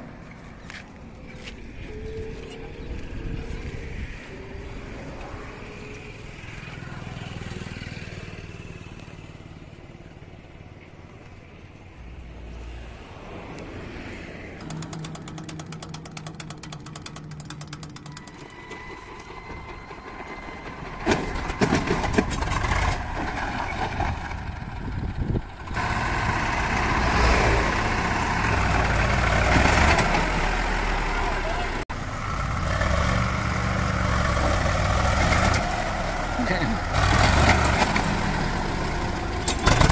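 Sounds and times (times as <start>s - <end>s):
rapid clicking: 14.6s - 18.7s
tractor diesel engine running: 14.6s - 39.9s.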